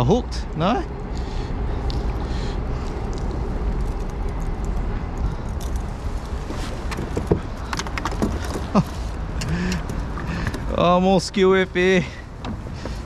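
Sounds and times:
steady low rumble: 0.0s - 13.0s
fishing gear clicks and knocks: 3.1s - 10.8s.

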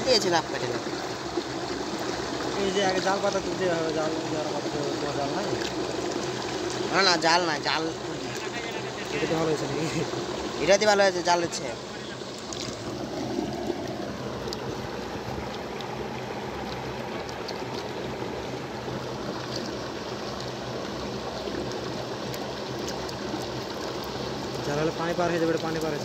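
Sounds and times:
flowing river water: 0.0s - 26.0s.

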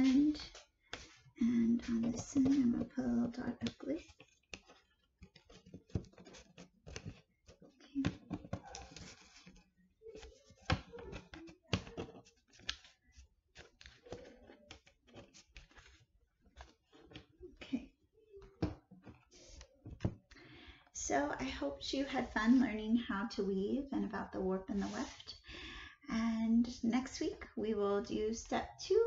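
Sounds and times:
paper rustling: 0.0s - 17.4s.

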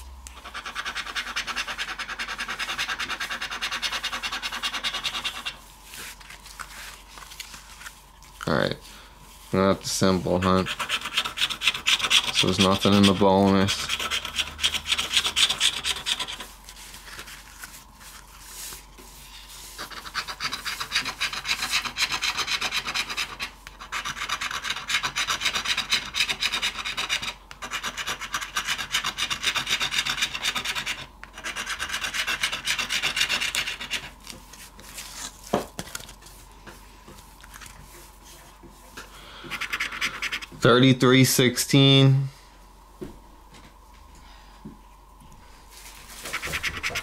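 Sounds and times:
scratching a lottery ticket: 0.4s - 7.9s, 9.5s - 18.8s, 19.5s - 34.2s, 39.5s - 40.6s, 46.0s - 47.0s.

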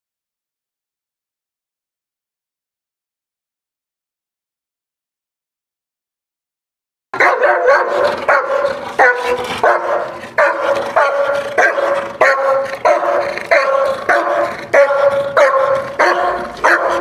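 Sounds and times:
large dog barking: 7.2s - 17.0s.

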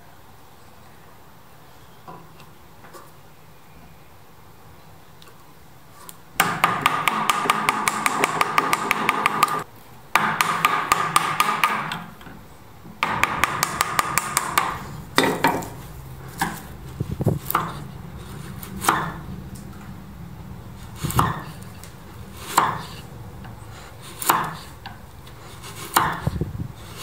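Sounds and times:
chisel knocking on wood: 6.4s - 12.1s, 13.0s - 15.8s, 21.1s - 21.5s, 22.5s - 22.9s, 24.2s - 25.0s, 25.9s - 26.4s
chisel paring wood fibres crackling: 13.0s - 19.9s, 20.7s - 27.0s.

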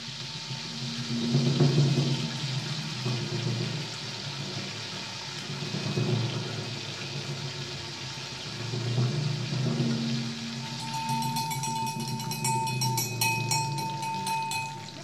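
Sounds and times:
deep-frying sizzle: 0.0s - 15.0s
low hum: 10.3s - 15.0s.

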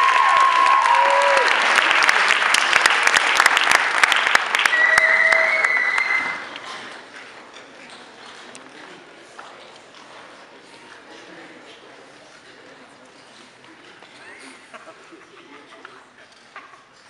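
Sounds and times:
whoops and cheers: 0.0s - 1.6s, 4.6s - 6.4s
audience applauding: 0.0s - 6.7s.

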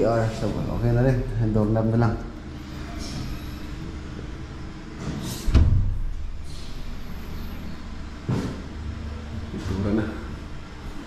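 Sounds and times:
door thudding shut: 5.5s - 6.0s.

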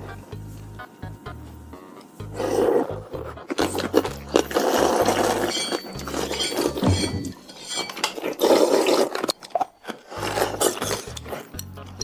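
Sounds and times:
slurping: 2.3s - 11.7s
chopsticks clinking on bowls: 5.1s - 9.8s, 10.6s - 11.8s.

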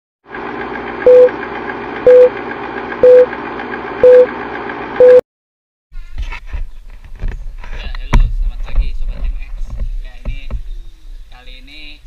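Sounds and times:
loud countdown beeps: 1.1s - 1.3s, 2.1s - 2.3s, 3.0s - 3.3s, 4.0s - 4.3s, 5.0s - 5.2s.

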